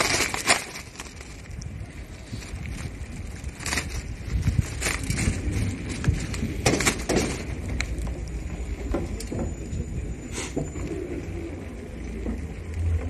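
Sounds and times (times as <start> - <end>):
knocks and rattles: 4.6 - 7.8.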